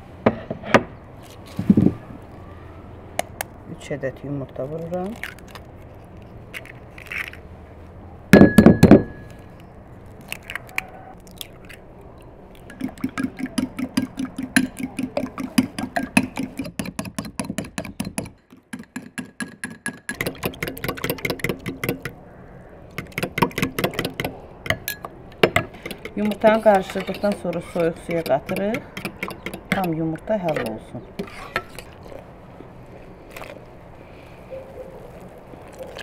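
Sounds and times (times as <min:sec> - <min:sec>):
fork beating eggs in bowl: 0:12.7 - 0:18.3, 0:23.0 - 0:32.2
stirring in a saucepan: 0:23.0 - 0:32.3.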